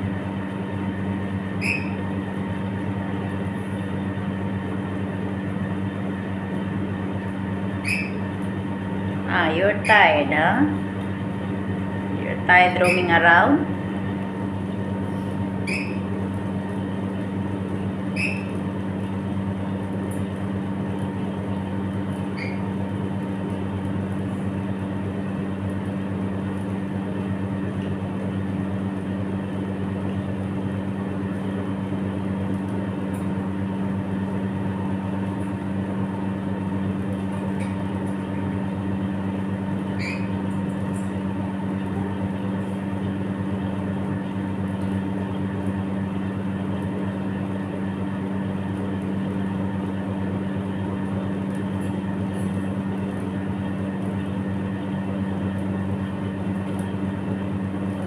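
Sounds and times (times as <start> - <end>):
low machine hum: 0.0 - 58.0
parrot squeak: 1.6 - 2.0, 7.8 - 8.2, 12.8 - 13.2, 15.6 - 16.0, 18.2 - 18.5, 22.4 - 22.6, 40.0 - 40.4.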